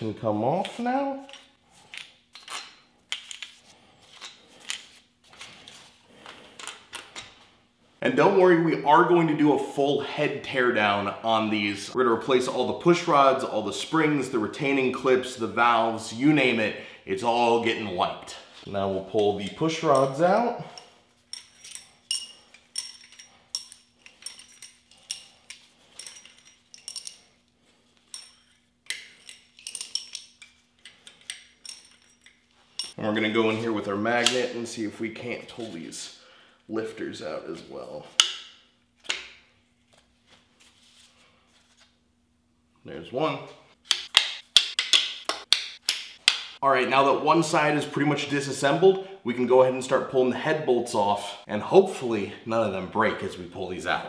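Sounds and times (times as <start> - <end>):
light metallic clicks and clinks: 19.9 - 27.3.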